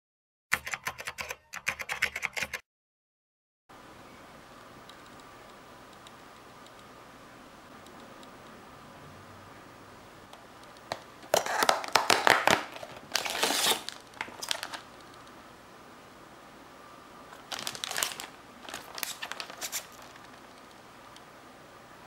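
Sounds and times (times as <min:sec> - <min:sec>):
plastic packaging crinkling: 0:11.3 - 0:15.1, 0:17.3 - 0:20.8.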